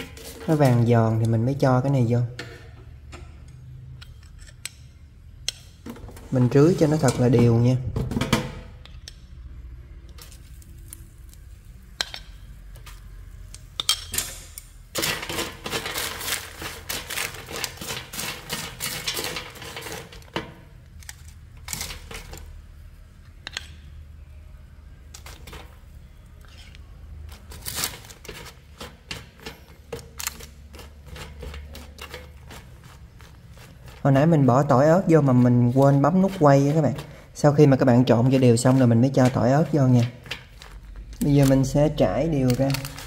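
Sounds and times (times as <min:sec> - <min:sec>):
peanuts clattering in basket: 0:14.9 - 0:22.6, 0:27.3 - 0:43.0.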